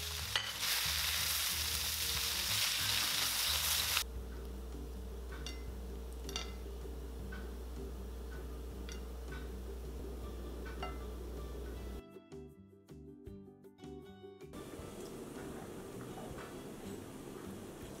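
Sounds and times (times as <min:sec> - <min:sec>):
noodles sizzling in a wok: 0:00.0 - 0:04.1
background music: 0:00.0 - 0:18.0.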